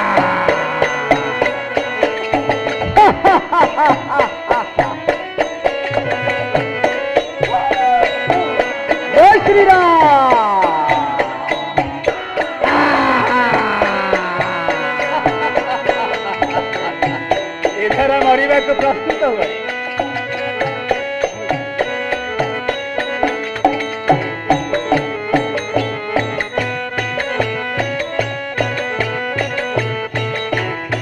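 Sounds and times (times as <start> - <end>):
hand drum in fast rhythm: 0.0 - 31.0
held melodic line: 0.0 - 31.0.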